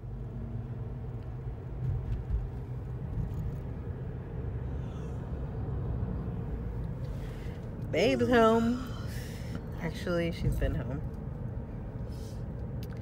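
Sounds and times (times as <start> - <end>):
car engine rumble: 0.0 - 13.0.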